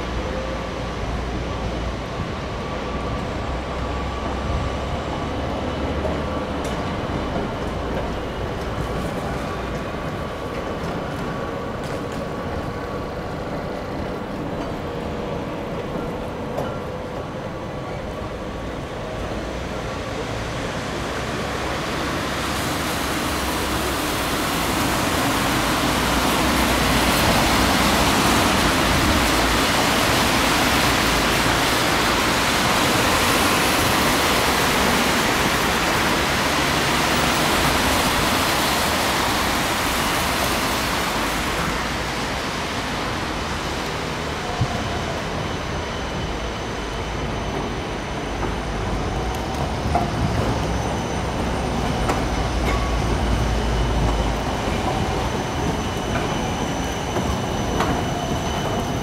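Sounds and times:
trams running on tracks: 0.0 - 59.0
tyres hissing on wet road: 19.4 - 47.2.

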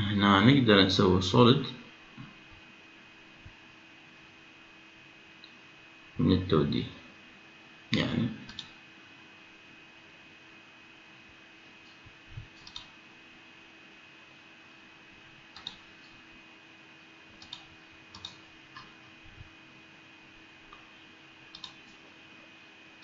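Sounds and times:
faint electrical hum: 0.0 - 23.0
computer mouse clicking: 8.5 - 8.8, 11.9 - 12.9, 15.5 - 15.8, 17.4 - 18.9, 21.5 - 22.0.

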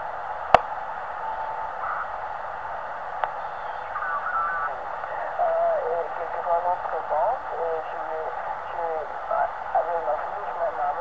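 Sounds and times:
radio band hiss: 0.0 - 11.0
mistuned radio voices and whistles: 3.3 - 5.4.

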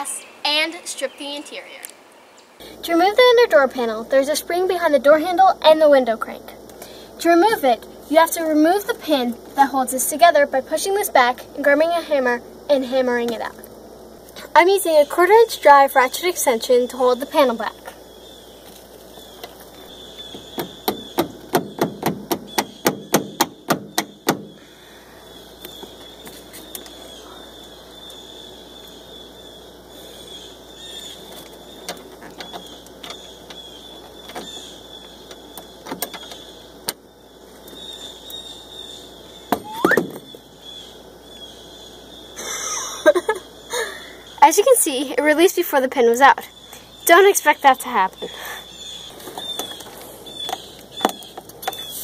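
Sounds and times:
handle squeaking: 18.6 - 24.6, 30.9 - 37.0, 39.5 - 40.4.

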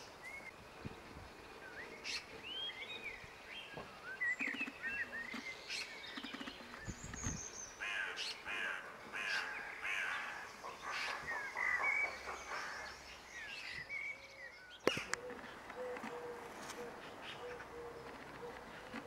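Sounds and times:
high bird chirps: 4.0 - 7.8
harsh crow-like bird calls: 7.8 - 13.6, 14.4 - 19.0.

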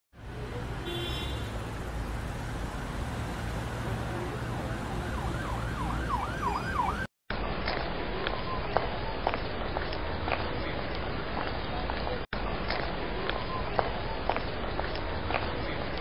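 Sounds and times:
car engine running: 1.3 - 5.0
siren-like wail: 3.7 - 7.1.

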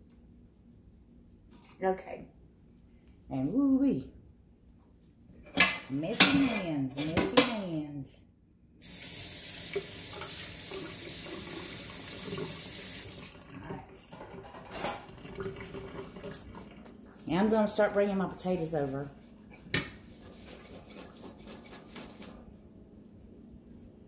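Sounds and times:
faucet running into sink: 8.8 - 16.9.

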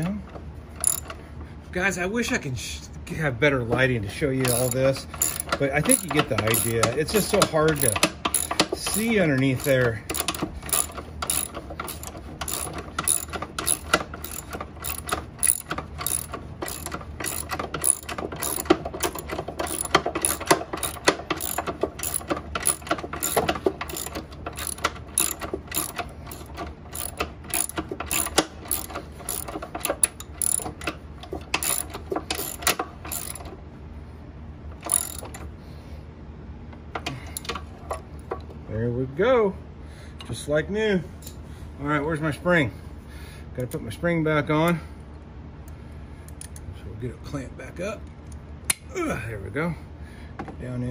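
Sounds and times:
ratchet wrench clicking: 0.8 - 1.2, 4.4 - 30.9, 31.5 - 33.5, 34.8 - 35.4.

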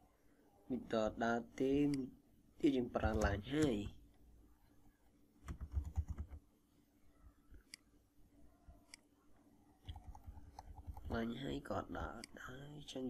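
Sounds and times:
keyboard typing: 3.0 - 4.0, 5.4 - 6.5, 9.8 - 11.2.

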